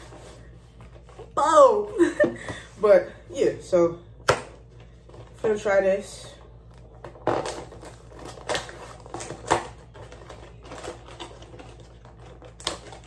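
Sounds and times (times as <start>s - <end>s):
cardboard box crackling and tearing: 7.0s - 13.0s.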